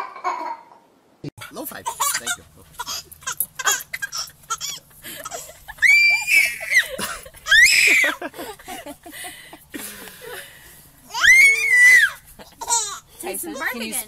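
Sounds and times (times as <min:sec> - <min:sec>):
baby shrieking with delight: 0:05.8 - 0:06.9, 0:07.5 - 0:08.2, 0:11.1 - 0:12.2.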